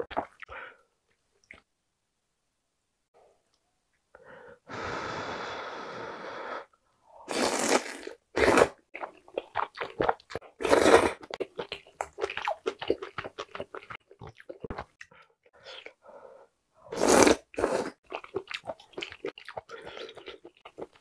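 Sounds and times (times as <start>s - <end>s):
noodle slurping: 7.3s - 8.8s
wet chewing clicks: 11.3s - 15.2s.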